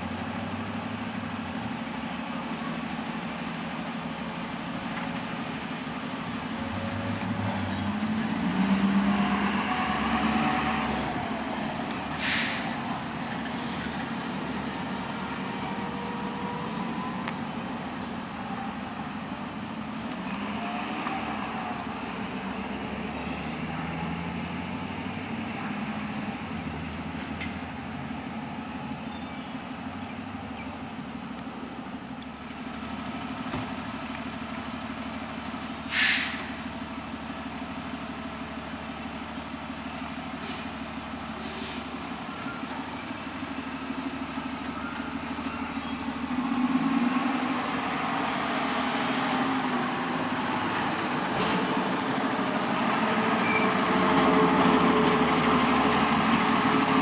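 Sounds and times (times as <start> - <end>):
diesel engine running: 0.0 - 57.0
air brake hiss: 12.1 - 12.8, 35.9 - 36.6, 40.4 - 40.8, 41.4 - 42.0.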